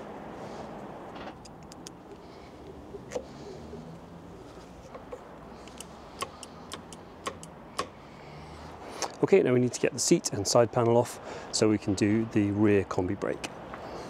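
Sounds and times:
steady background hum: 0.0s - 10.4s.

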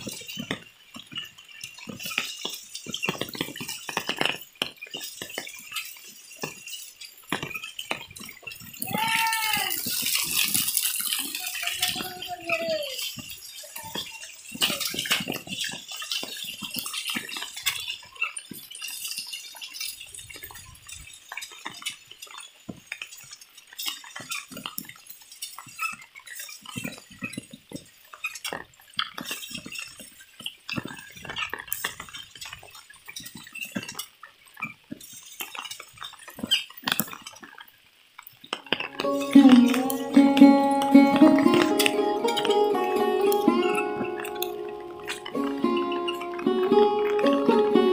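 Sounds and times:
rain falling: 0.0s - 47.9s
raindrops dripping and tapping: 0.0s - 47.9s
plucked string tune: 38.7s - 47.9s.

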